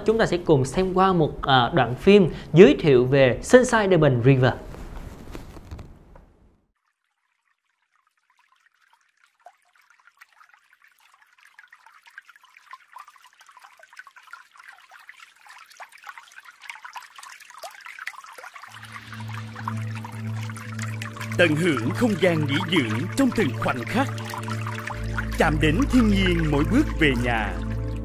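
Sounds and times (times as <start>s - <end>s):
water trickling and dripping: 6.8s - 28.0s.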